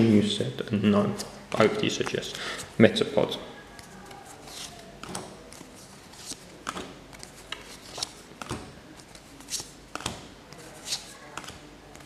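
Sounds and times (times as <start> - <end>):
cards swishing and flicking: 4.2 - 12.0.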